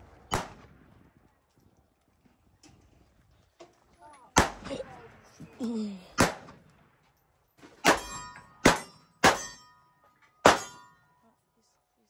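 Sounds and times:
sharp gunshots with ringing tail: 0.0 - 0.9, 4.4 - 5.3, 6.2 - 6.7, 7.8 - 9.8, 10.4 - 11.0.

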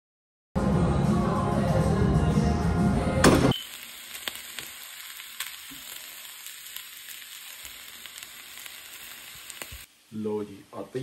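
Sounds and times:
loud music: 0.6 - 3.5
food sizzling in a frying pan: 3.5 - 11.0.

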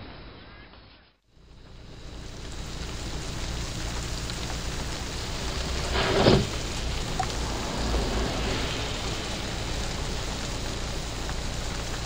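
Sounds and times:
low rumble: 1.3 - 12.0
rain on car windscreen: 1.3 - 12.0.

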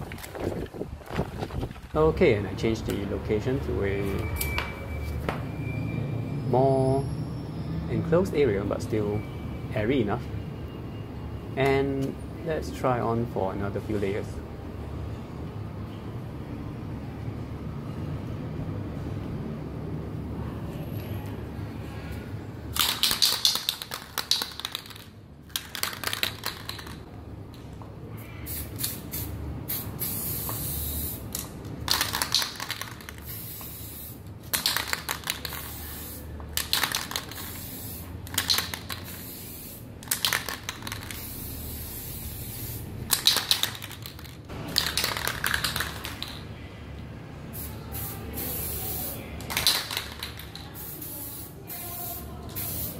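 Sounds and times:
spray paint can hissing: 22.7 - 27.0, 28.5 - 46.4, 47.5 - 52.9.

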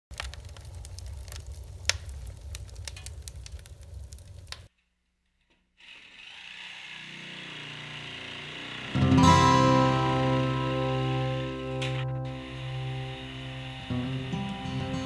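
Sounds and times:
crackling with sharp clicks: 0.1 - 4.8
steady hiss: 9.4 - 15.0.

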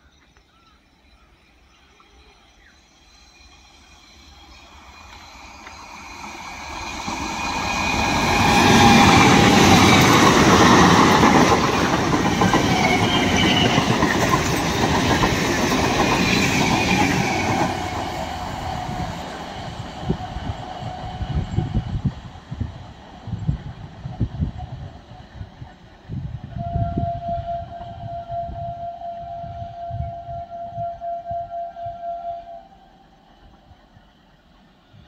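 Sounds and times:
train wheels rumbling on rails: 2.6 - 35.0.

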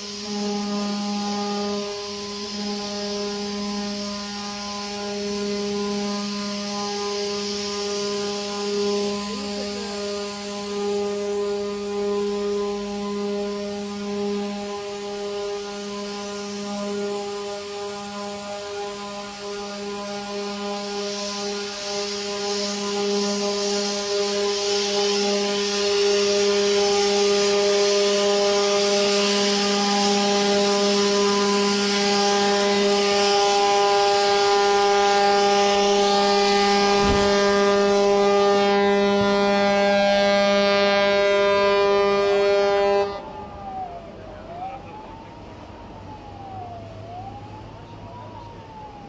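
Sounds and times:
water rushing: 0.0 - 40.3
long horn blast: 0.0 - 43.4
hull rolling hiss: 0.0 - 47.7.

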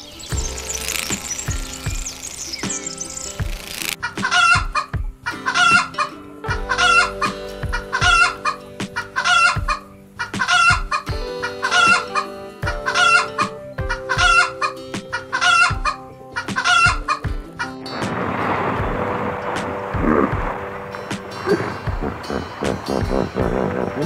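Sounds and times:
background music with steady beat: 0.0 - 18.2, 18.8 - 24.0
chickens clucking: 0.3 - 18.2.

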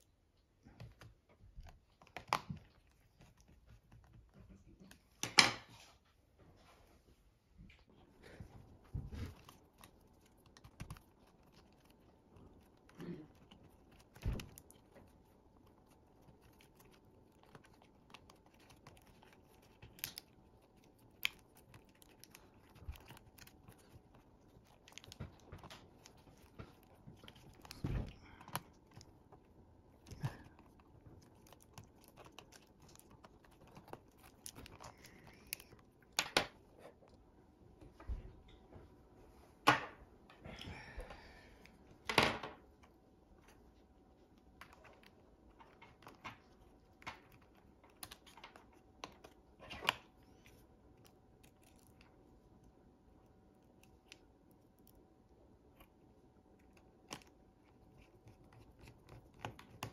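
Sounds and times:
hands clicking and tapping laptop: 0.7 - 4.4, 9.2 - 29.4, 58.1 - 59.9.

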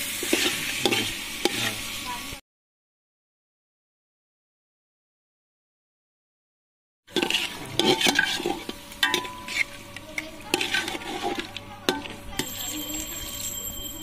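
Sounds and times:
sauce sizzling: 0.0 - 2.4, 7.1 - 13.4
metal spatula scraping a pot: 0.1 - 1.9, 7.1 - 13.4.

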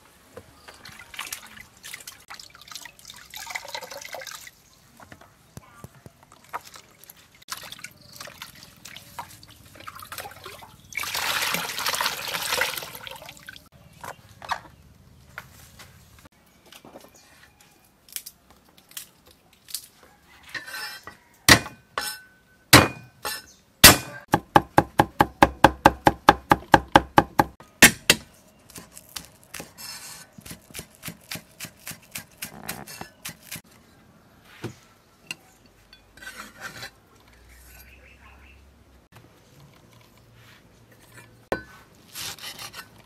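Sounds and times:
cleaver chopping on wooden block: 21.5 - 21.8, 22.8 - 23.1, 23.8 - 28.3.

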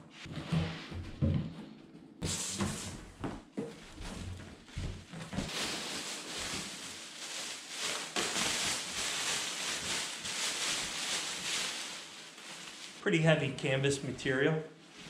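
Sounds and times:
plastic wrapping crinkling: 3.8 - 14.3.

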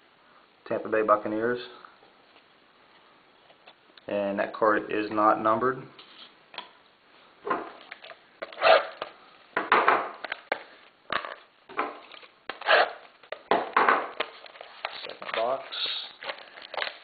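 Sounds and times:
packaging rustling and scraping: 10.2 - 13.5, 14.1 - 17.0.

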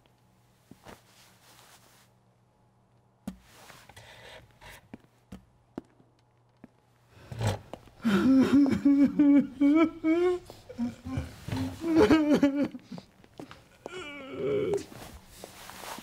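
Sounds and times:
man sobbing loudly: 8.0 - 14.9.

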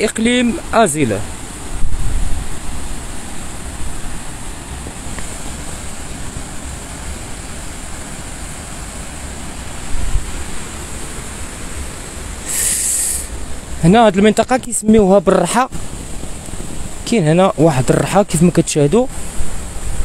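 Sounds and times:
waterfall rushing: 0.0 - 20.0
wind rumbling on microphone: 0.0 - 20.0
sharp hiss: 12.4 - 13.5.

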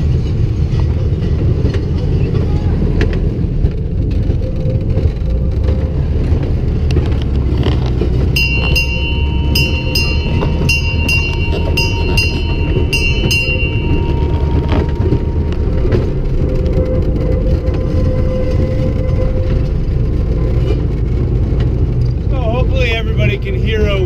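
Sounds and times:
rail car rumbling on track: 0.0 - 24.0
high ringing ding: 8.4 - 16.9.

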